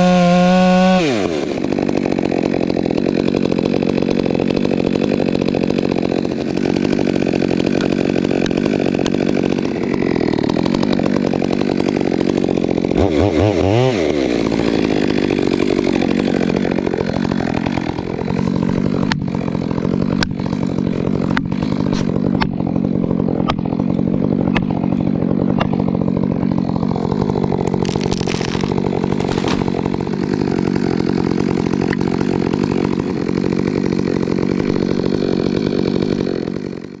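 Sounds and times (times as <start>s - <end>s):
wood cracking: 0.0s - 36.8s
chainsaw cutting at high revs: 0.0s - 37.0s
tree falling rush: 26.6s - 32.6s.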